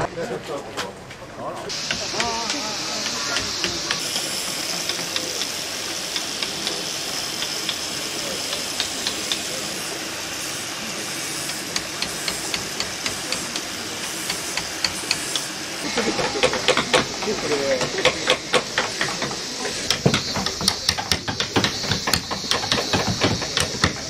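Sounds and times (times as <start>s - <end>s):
steady high hiss: 1.7s - 24.0s
mallet tapping a chisel: 1.9s - 5.5s, 8.5s - 9.5s, 11.8s - 13.7s, 14.3s - 15.5s, 16.2s - 24.0s.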